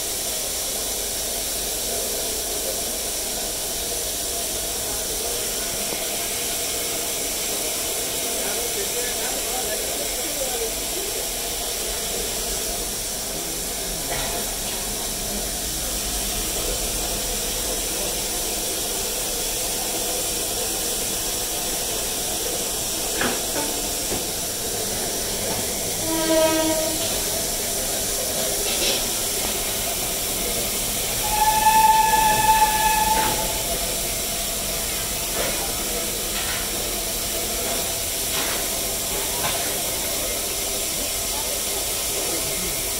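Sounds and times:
steam hissing: 0:00.0 - 0:42.9
steam locomotive whistle: 0:26.0 - 0:27.2, 0:31.2 - 0:33.7.

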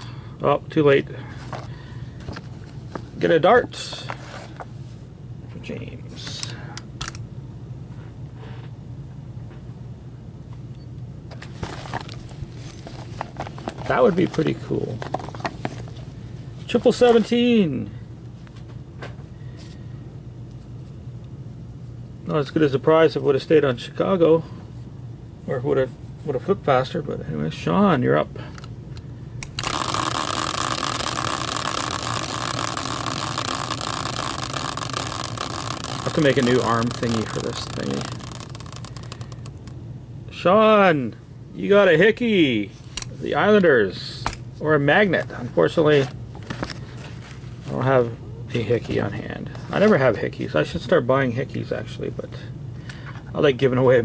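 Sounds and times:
steady low hum: 0:00.0 - 0:54.0
prize wheel whirring: 0:29.5 - 0:39.7.

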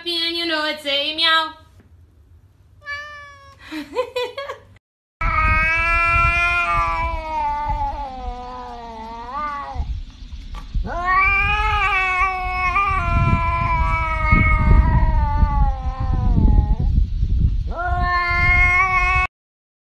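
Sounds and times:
cat yowling: 0:02.8 - 0:03.6, 0:05.2 - 0:09.9, 0:10.8 - 0:16.9, 0:17.7 - 0:19.3.

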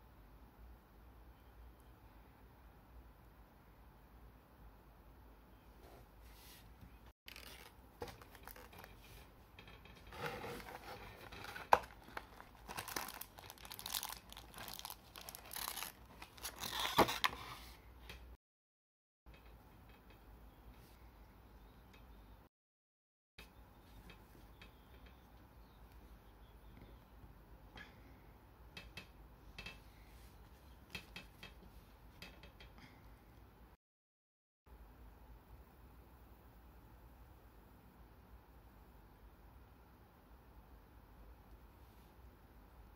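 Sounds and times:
plastic packaging crinkling: 0:07.3 - 0:09.1, 0:10.1 - 0:17.5.

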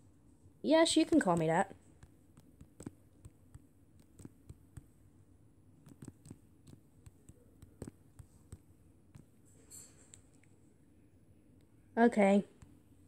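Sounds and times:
low background hum: 0:00.0 - 0:13.0
taps on touchscreen keyboard: 0:01.1 - 0:05.0, 0:05.8 - 0:09.3.

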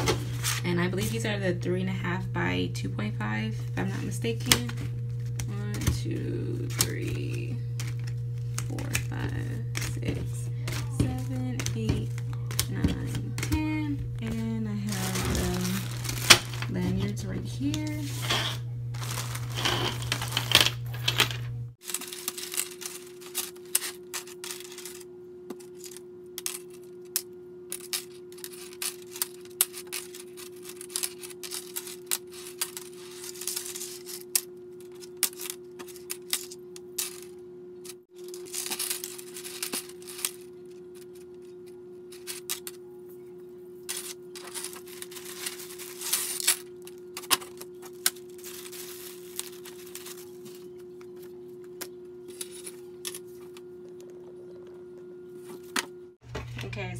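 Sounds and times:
plastic bag crinkling: 0:14.1 - 0:21.1, 0:21.8 - 0:25.0, 0:38.1 - 0:42.8, 0:43.8 - 0:55.7.

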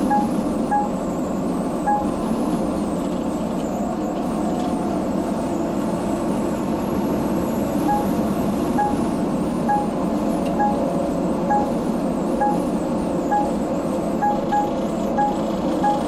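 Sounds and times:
short electronic beeps: 0:00.0 - 0:01.1, 0:01.8 - 0:02.3, 0:07.9 - 0:11.8, 0:12.4 - 0:16.0
truck cab road and engine noise: 0:00.0 - 0:16.0.

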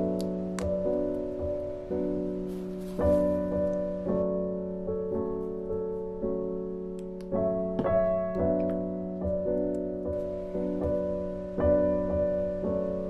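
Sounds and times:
gentle solo piano melody: 0:00.0 - 0:13.0.

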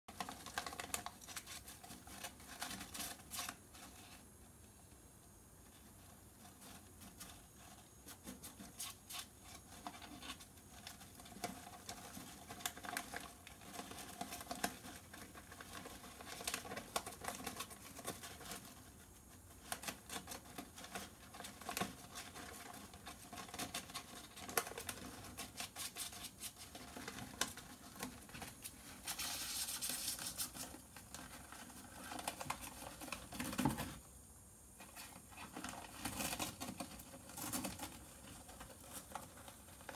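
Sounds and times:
hamster rustling in paper bedding: 0:06.4 - 0:34.0.

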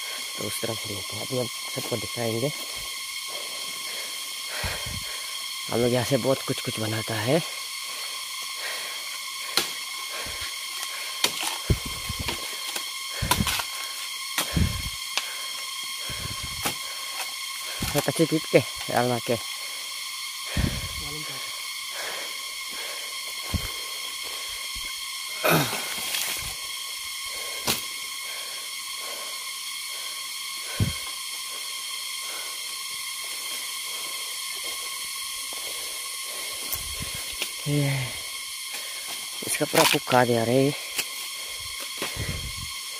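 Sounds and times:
high hiss: 0:00.0 - 0:42.9
high-pitched drone: 0:00.0 - 0:42.9
bamboo creaking and rustling: 0:07.0 - 0:19.6, 0:22.6 - 0:28.9
machete chopping bamboo: 0:09.5 - 0:09.8, 0:11.2 - 0:13.8, 0:16.6 - 0:18.1, 0:27.6 - 0:27.9, 0:39.7 - 0:40.2.

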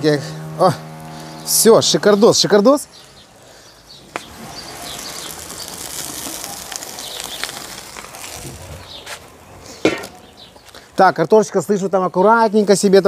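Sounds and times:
food sizzling in oil: 0:04.1 - 0:09.0.

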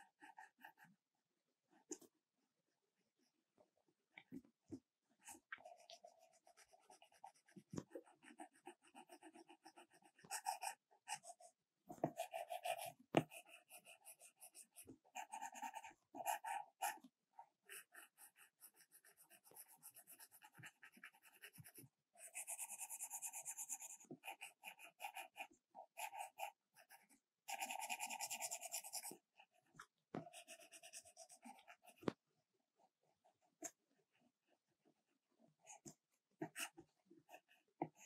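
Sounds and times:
stylus scratching on glass screen: 0:17.8 - 0:29.4.

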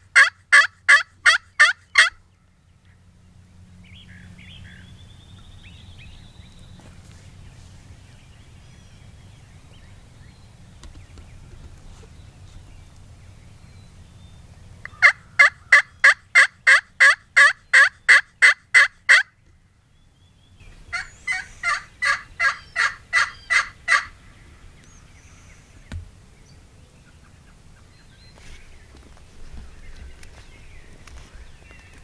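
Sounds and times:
turkey call yelps: 0:00.1 - 0:02.2, 0:14.9 - 0:19.3, 0:20.9 - 0:24.2.

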